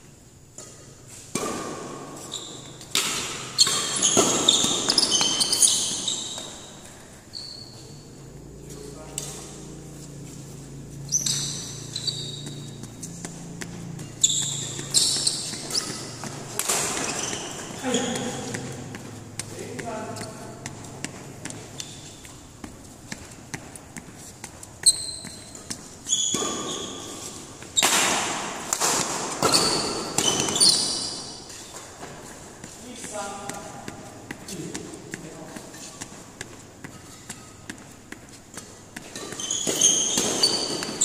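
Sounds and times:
rackets hitting shuttlecock: 0:00.5 - 0:07.0, 0:09.1 - 0:41.0
shoes squeaking on court: 0:00.5 - 0:41.0
steady low hum: 0:06.5 - 0:26.1.

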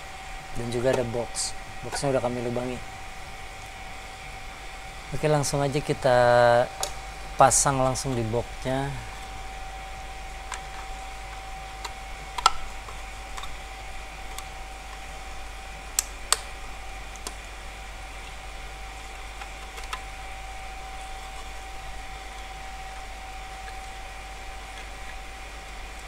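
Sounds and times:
steady background hum: 0:00.0 - 0:26.0.

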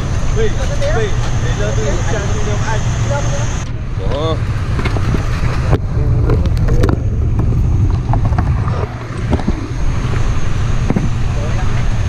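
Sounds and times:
steady low rumble: 0:00.0 - 0:12.0
faint voices: 0:10.9 - 0:12.0.

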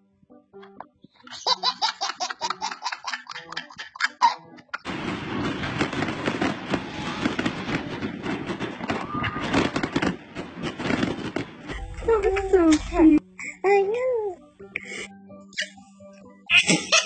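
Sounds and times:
baby giggling: 0:01.2 - 0:04.8, 0:16.5 - 0:17.0
fireworks popping: 0:04.8 - 0:13.2.

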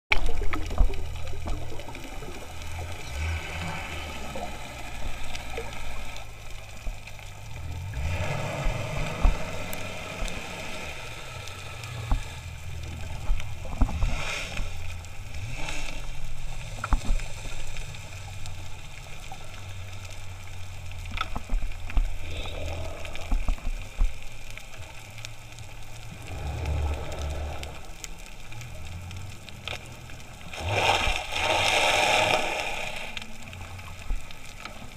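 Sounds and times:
low underwater rumble: 0:00.1 - 0:34.9
water noise: 0:00.1 - 0:34.9.

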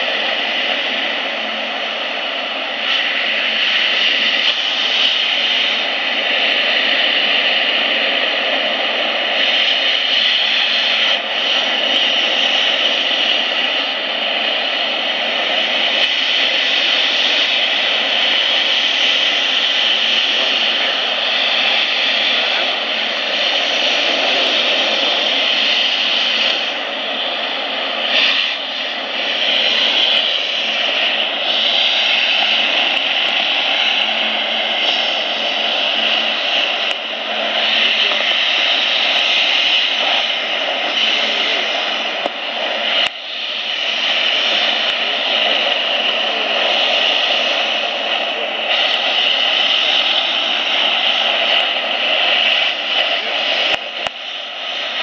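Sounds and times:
mist cannon fan drone: 0:00.0 - 0:55.0.

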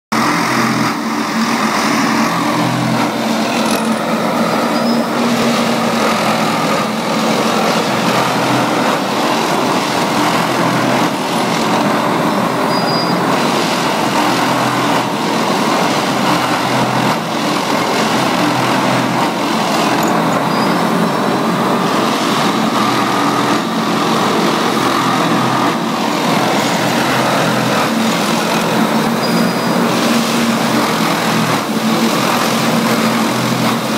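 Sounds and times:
track machine engine and hydraulics: 0:00.1 - 0:33.9
tamping units packing ballast: 0:00.2 - 0:33.9.

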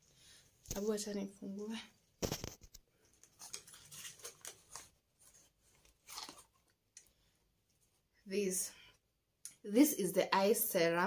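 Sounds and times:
cardboard packaging rustling: 0:02.2 - 0:06.8.

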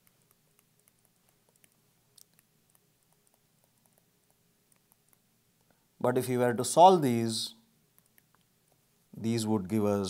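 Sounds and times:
pen writing ticks: 0:00.0 - 0:05.2.

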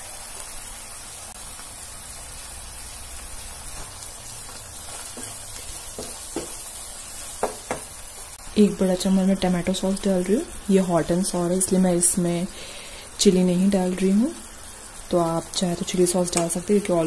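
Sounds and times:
vegetables sizzling in hot oil: 0:00.0 - 0:17.0
wooden spatula knocking in wok: 0:04.4 - 0:06.7, 0:07.3 - 0:08.0.

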